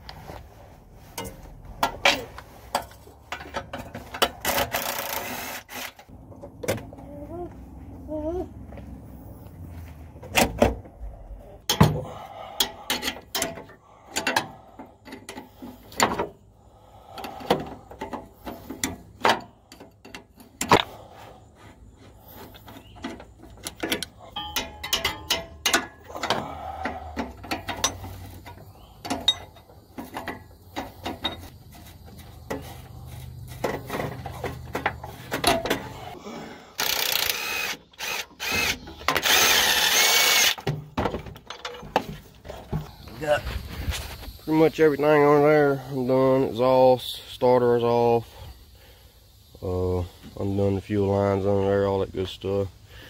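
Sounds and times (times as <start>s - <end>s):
metal tools clinking: 22.5s - 36.1s.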